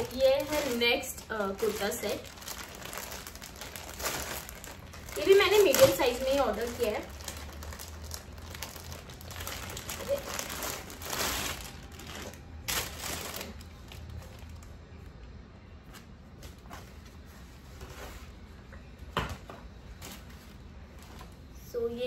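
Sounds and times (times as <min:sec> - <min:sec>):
plastic packaging crinkling: 0:00.0 - 0:15.1.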